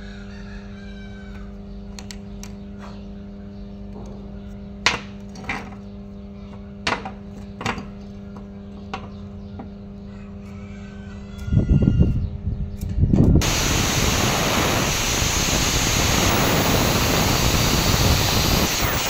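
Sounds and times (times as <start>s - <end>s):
steady low hum: 0.0s - 19.0s
loud low rumbling: 11.6s - 19.0s.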